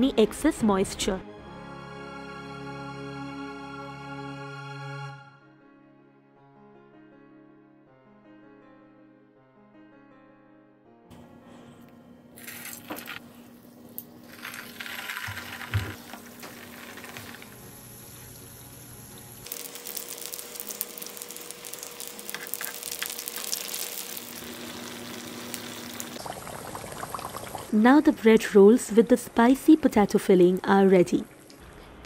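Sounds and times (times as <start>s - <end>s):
oil sizzling and crackling: 12.4s - 28.2s, 29.2s - 32.0s.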